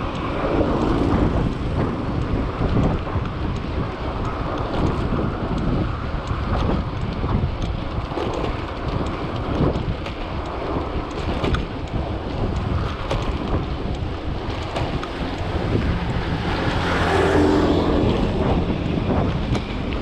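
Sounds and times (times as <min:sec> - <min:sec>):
wind buffeting microphone: 0:00.0 - 0:20.0
faint ticks: 0:02.2 - 0:16.3.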